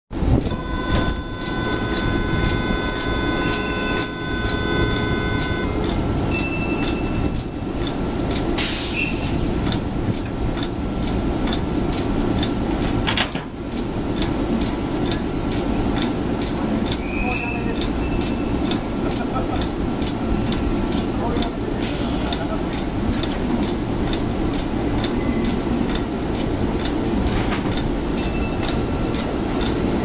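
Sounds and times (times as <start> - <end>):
train equipment humming: 0.1 - 30.0
steady high tone: 0.2 - 7.8
regular ticking: 0.3 - 8.6, 9.3 - 13.0, 13.6 - 21.7, 22.3 - 30.0
short hiss of air: 8.6 - 9.3.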